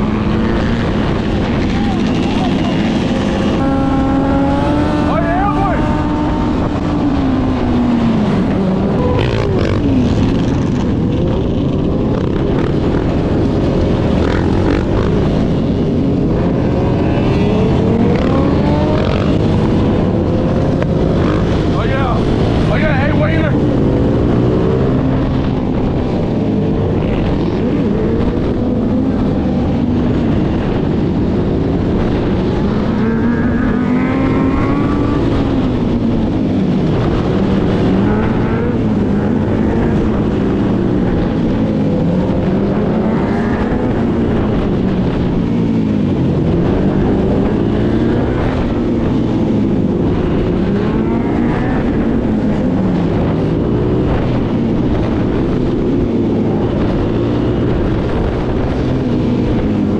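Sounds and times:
quad engine revving: 0.0s - 11.0s, 16.6s - 25.3s.

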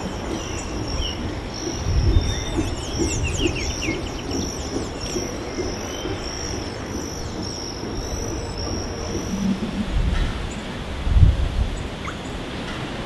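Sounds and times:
low rumble: 8.6s - 11.8s.

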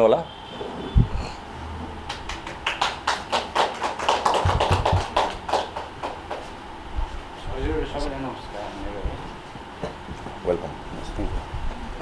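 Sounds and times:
people clapping: 2.0s - 6.6s.

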